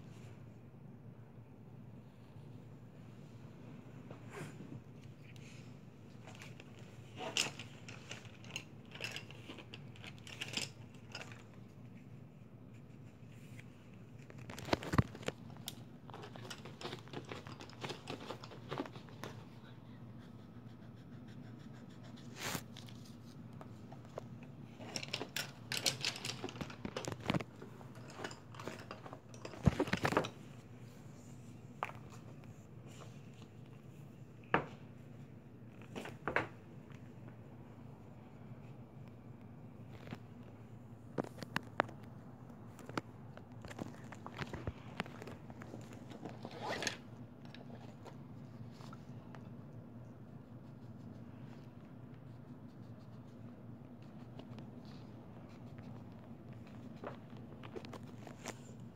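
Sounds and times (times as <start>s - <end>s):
low steady hum: 0.0s - 58.9s
paper and plastic rustling: 12.8s - 19.5s, 22.4s - 34.0s, 41.1s - 49.1s
pencil scratching: 20.1s - 23.2s.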